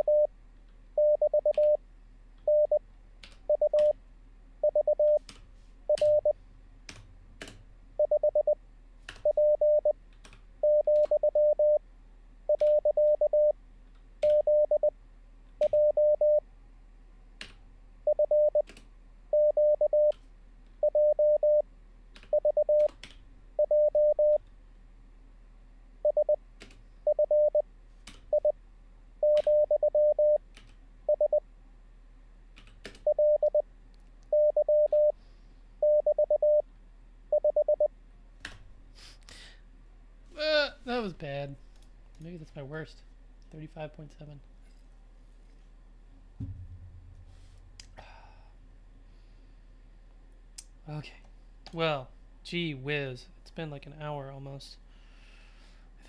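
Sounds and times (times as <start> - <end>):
morse code tones: 0.0 - 0.3, 1.0 - 1.8, 2.5 - 2.8, 3.5 - 4.0, 4.6 - 5.2, 5.9 - 6.4, 8.0 - 8.6, 9.2 - 10.0, 10.6 - 11.8, 12.5 - 13.5, 14.2 - 14.9, 15.6 - 16.4, 18.1 - 18.6, 19.4 - 20.1, 20.8 - 21.6, 22.4 - 22.9, 23.6 - 24.4, 26.0 - 26.4, 27.1 - 27.6, 29.2 - 30.4, 31.1 - 31.4, 33.1 - 33.6, 34.3 - 35.2, 35.8 - 36.6, 37.3 - 37.9.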